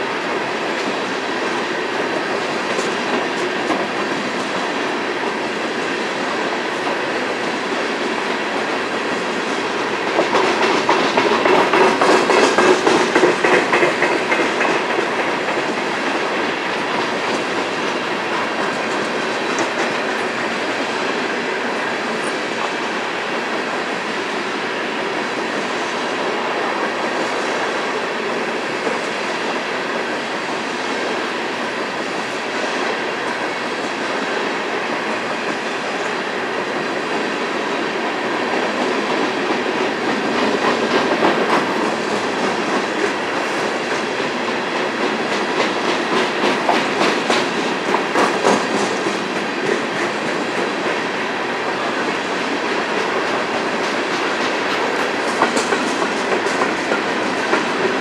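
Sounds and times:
clickety-clack over rail joints: 0.0 - 58.0
train wheels rumbling on rail: 0.0 - 58.0
empty freight cars rattling: 1.9 - 23.0, 37.0 - 58.0.

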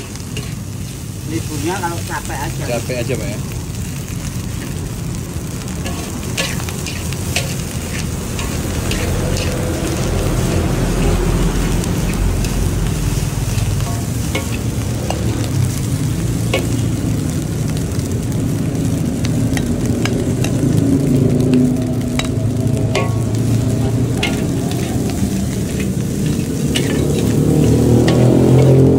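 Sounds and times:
metal spatula scraping wok: 0.0 - 2.4, 4.4 - 17.4, 21.5 - 28.9
frying sizzle: 0.0 - 28.9
low rumble: 2.5 - 28.9.

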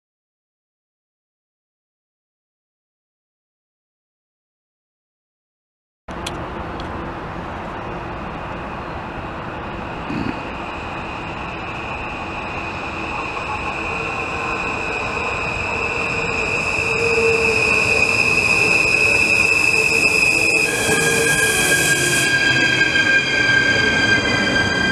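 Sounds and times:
electric train approaching: 6.1 - 24.9
high-pitched squeal: 7.8 - 24.9.

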